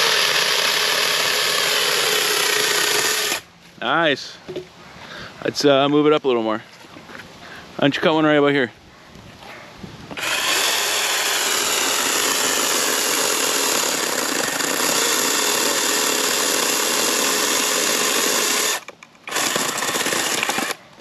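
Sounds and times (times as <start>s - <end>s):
chain cutting wood: 0.0s - 3.4s, 10.2s - 20.8s
chainsaw motor whine: 0.0s - 3.4s, 10.1s - 20.8s.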